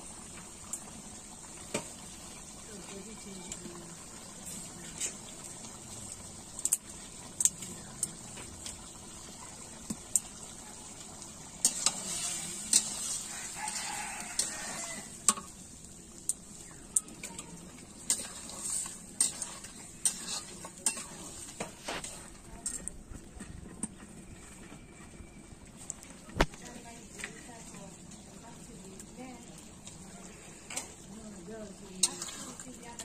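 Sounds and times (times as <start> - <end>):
chicken sizzling in a wok: 0.0 - 33.0
spatula scraping and clinking on pan: 11.6 - 15.5, 18.0 - 23.9, 32.0 - 33.0.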